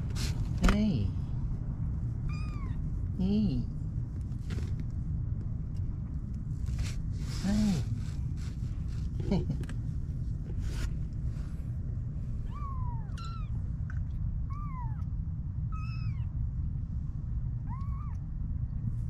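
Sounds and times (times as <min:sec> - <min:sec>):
steady low rumble: 0:00.0 - 0:19.0
kittens mewing: 0:02.3 - 0:02.8, 0:12.4 - 0:13.6, 0:14.5 - 0:15.1, 0:15.7 - 0:16.3, 0:17.6 - 0:18.2.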